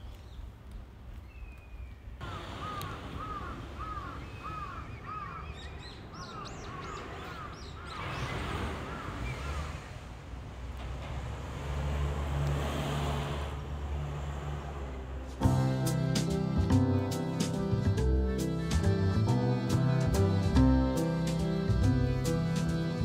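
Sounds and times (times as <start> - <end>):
low engine hum: 8.3 - 23.0.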